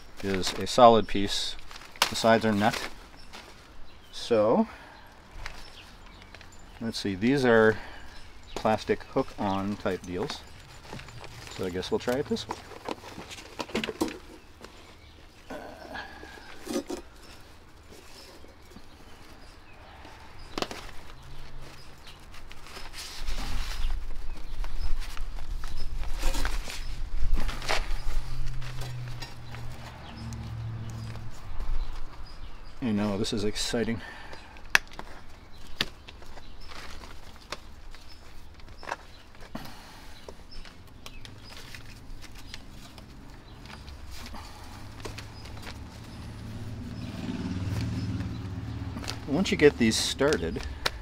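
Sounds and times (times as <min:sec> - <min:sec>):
fabric bag rustling: 0:05.4 - 0:15.5.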